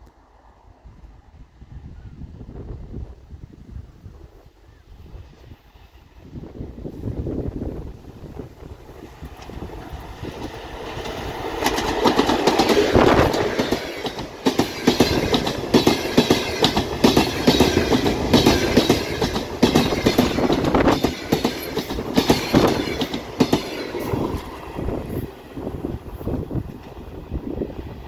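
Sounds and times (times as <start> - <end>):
diesel locomotive passing: 4.9 - 28.0
train wheels clattering over joints: 9.3 - 24.6.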